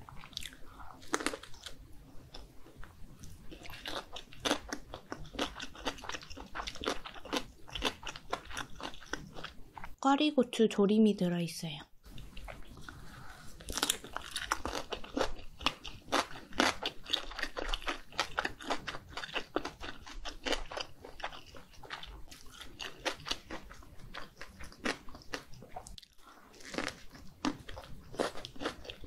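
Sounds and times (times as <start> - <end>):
crunchy chewing: 0.1 - 9.9, 12.1 - 29.0.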